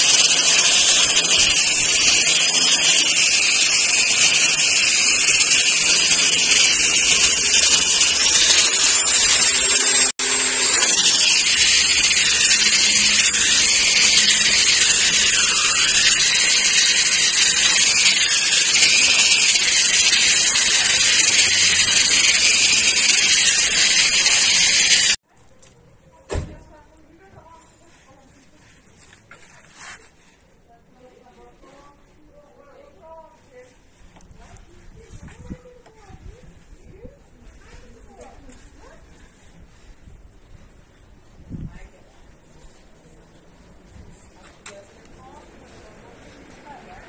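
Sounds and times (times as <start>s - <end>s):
orbital sander sanding stone: 0.0s - 25.2s.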